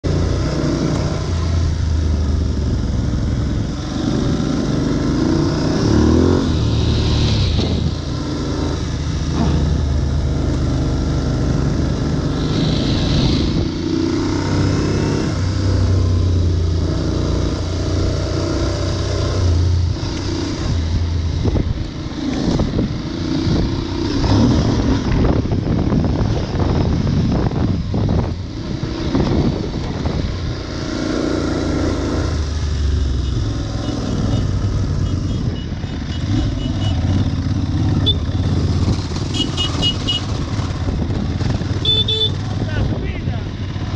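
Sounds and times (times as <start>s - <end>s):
motorcycle engine revving: 0.0s - 43.9s.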